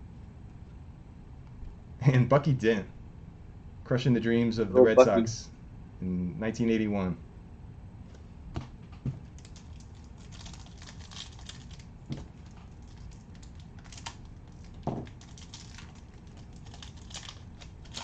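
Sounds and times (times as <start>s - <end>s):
foil wrapper crinkling: 9.2s - 18.0s.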